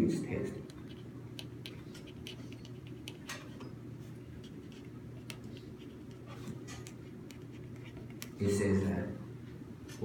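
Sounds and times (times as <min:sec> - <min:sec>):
pen scratching on paper: 0:00.8 - 0:03.3, 0:04.4 - 0:06.4.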